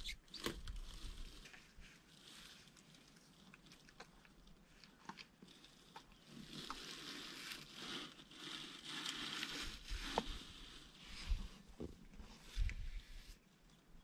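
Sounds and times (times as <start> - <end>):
porcupine rustling in dry debris: 5.4 - 13.5.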